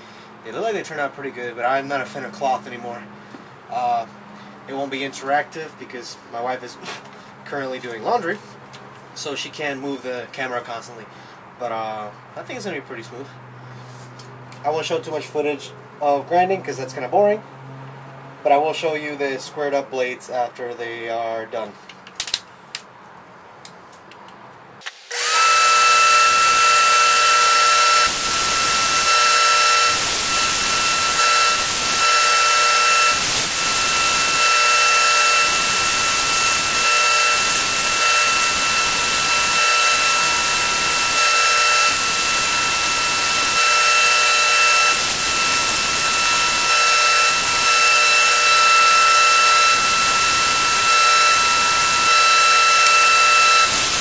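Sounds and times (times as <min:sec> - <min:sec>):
workshop machine whining: 0:24.8 - 0:54.0.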